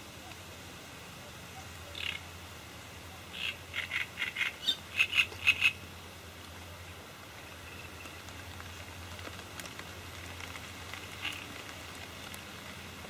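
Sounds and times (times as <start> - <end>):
frog croaking: 1.8 - 2.4, 3.3 - 5.9.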